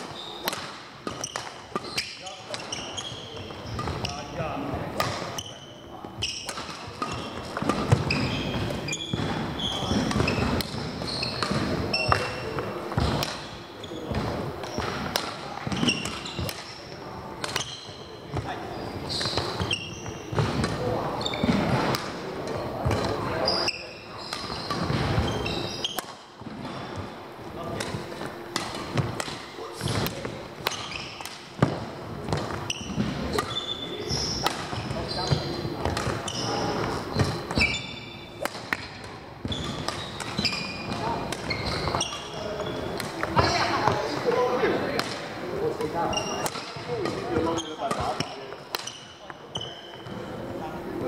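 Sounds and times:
shoes squeaking on court: 0.0s - 51.0s
racket striking shuttlecock: 0.4s - 2.7s, 6.3s - 12.4s, 13.0s - 13.4s, 14.1s - 16.8s, 25.9s - 26.2s, 27.8s - 33.6s, 34.4s - 37.7s, 38.4s - 43.5s, 46.4s - 49.1s.

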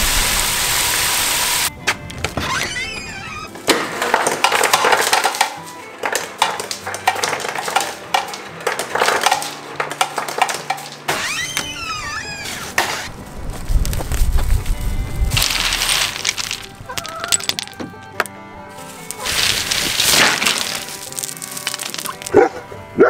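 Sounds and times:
ice cubes clattering into plastic bag: 4.0s - 11.1s, 15.4s - 17.8s, 18.8s - 22.4s.

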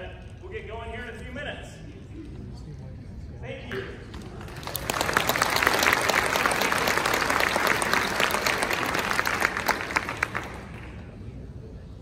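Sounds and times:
audience applauding: 4.3s - 11.1s.

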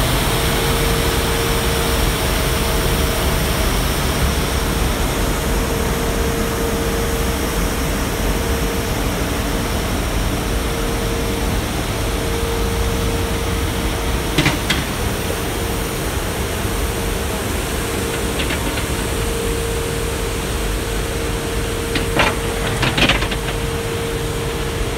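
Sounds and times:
road sweeper suction rushing: 11.8s - 24.9s
sharp clatters: 14.4s - 15.2s, 17.3s - 20.0s, 21.8s - 24.0s.

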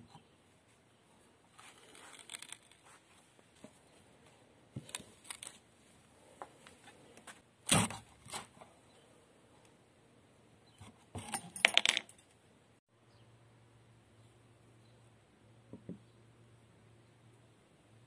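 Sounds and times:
sharp crack of wood: 7.6s - 8.5s.

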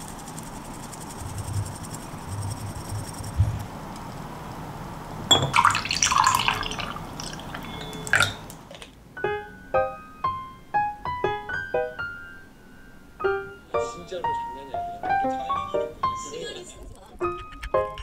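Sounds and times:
liquid poured into a glass: 5.3s - 8.4s
glass clink: 5.3s - 8.6s
gentle piano music: 5.3s - 18.0s.

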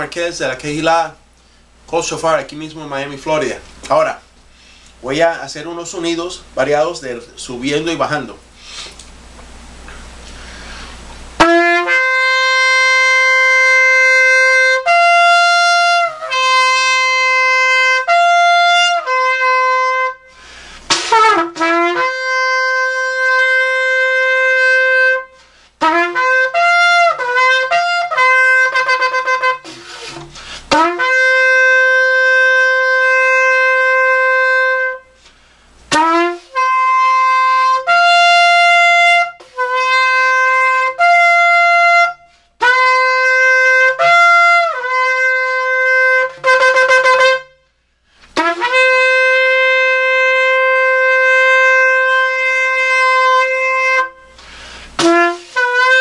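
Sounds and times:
shofar horn blasts: 11.4s - 35.2s, 35.9s - 47.7s, 48.3s - 56.0s.

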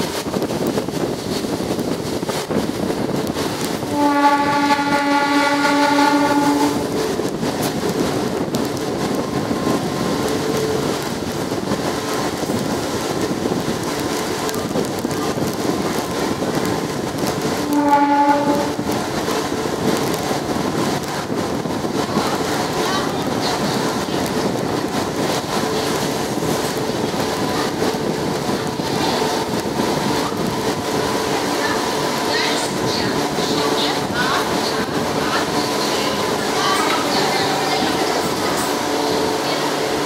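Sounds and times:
moving train rumble and clatter: 0.0s - 40.0s
train horn blast: 3.9s - 7.1s, 17.6s - 19.0s.

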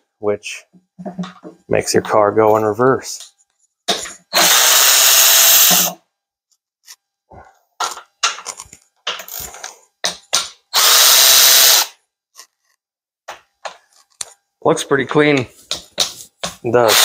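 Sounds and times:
power tool running: 3.9s - 6.0s, 10.7s - 11.9s
metal parts clicking and knocking: 7.8s - 10.6s.

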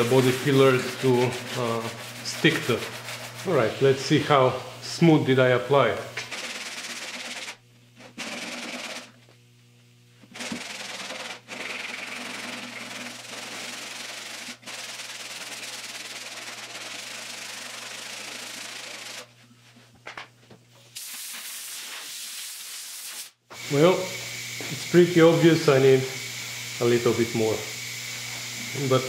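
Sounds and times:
sanding block scratching filler: 0.0s - 4.2s, 6.3s - 7.6s, 10.4s - 19.3s.

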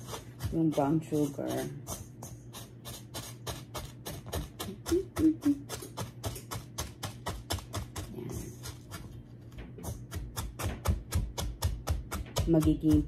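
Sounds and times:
spatula scraping in mixing bowl: 0.0s - 4.9s.

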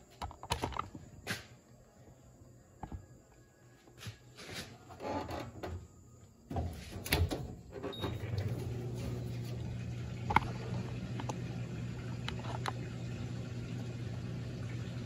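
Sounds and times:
washing machine motor humming: 5.0s - 15.0s.

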